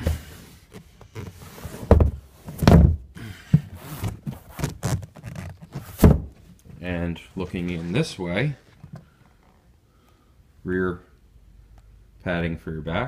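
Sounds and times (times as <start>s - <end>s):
vinyl cushions rubbing: 0.0s - 2.7s, 3.6s - 9.7s
cushions thumping: 1.8s - 4.9s, 5.7s - 6.4s.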